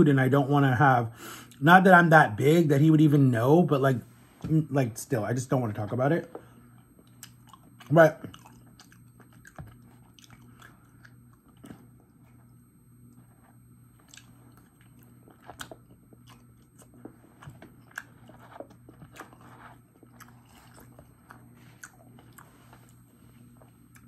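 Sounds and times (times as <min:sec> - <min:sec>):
faint chewing of soft food: 0:06.3 - 0:24.0.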